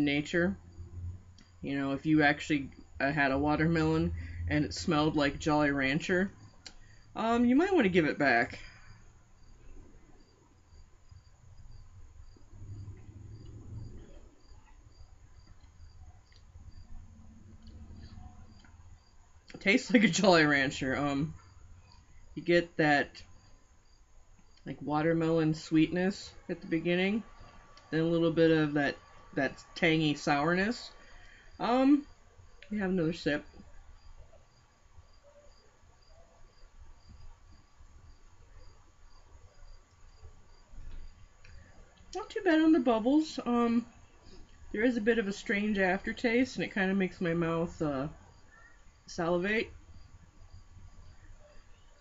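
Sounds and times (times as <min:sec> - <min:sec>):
cricket chirping: 0:00.0 - 0:52.0
low rumble: 0:00.6 - 0:01.7, 0:02.5 - 0:07.1, 0:08.8 - 0:19.4.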